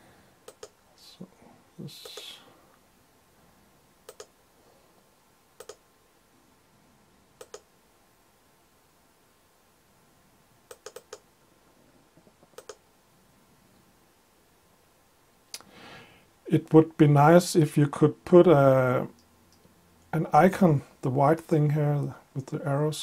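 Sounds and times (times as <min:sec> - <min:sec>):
computer mouse clicking: 0:00.4 - 0:00.8, 0:04.1 - 0:04.3, 0:05.6 - 0:05.8, 0:07.4 - 0:07.7, 0:10.7 - 0:11.2, 0:12.5 - 0:12.8.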